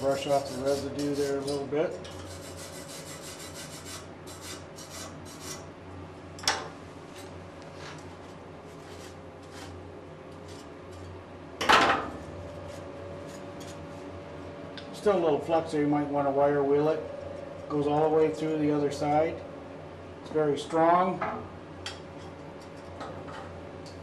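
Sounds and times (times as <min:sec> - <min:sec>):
brush scrubbing metal: 0:00.0 - 0:05.6.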